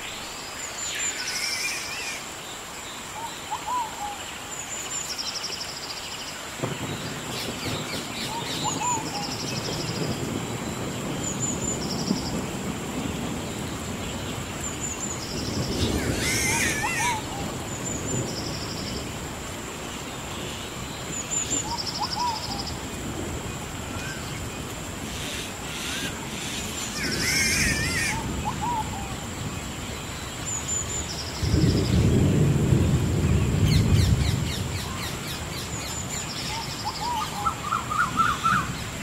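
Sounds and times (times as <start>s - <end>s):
bird warbling call: 15.7s - 17.5s, 25.0s - 29.2s, 36.5s - 38.8s.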